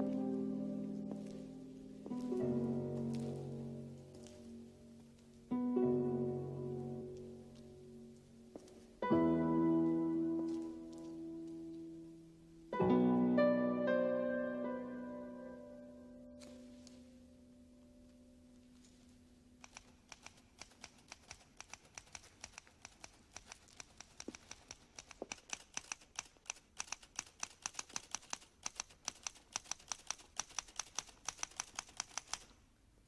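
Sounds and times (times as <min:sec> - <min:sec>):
soft music: 0:00.0 - 0:19.7
typewriter keys clacking: 0:19.6 - 0:32.5.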